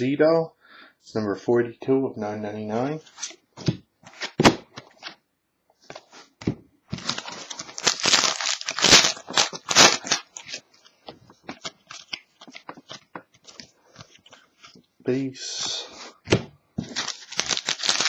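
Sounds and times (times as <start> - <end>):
foil wrapper tearing and crinkling: 7.0 - 10.6, 16.9 - 18.0.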